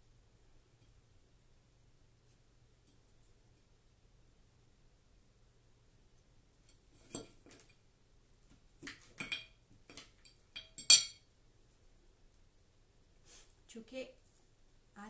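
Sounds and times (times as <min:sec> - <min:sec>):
cutlery clinking and scraping on plate: 0:06.7 - 0:07.7, 0:08.8 - 0:11.2.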